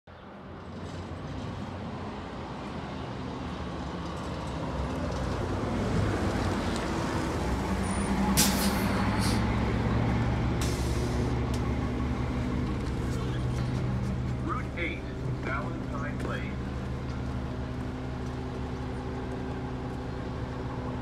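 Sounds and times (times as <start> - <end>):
diesel bus engine passing: 0.1 - 21.0
short air hisses: 8.4 - 9.4.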